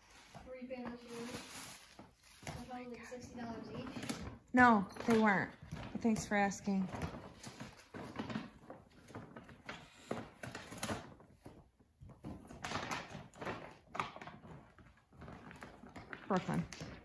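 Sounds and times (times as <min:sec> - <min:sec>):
paper bag crinkling: 0:00.0 - 0:04.1.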